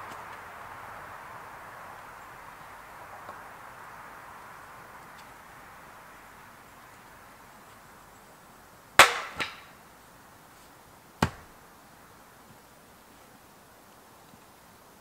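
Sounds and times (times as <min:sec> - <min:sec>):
sharp knocks: 0:11.2 - 0:11.5.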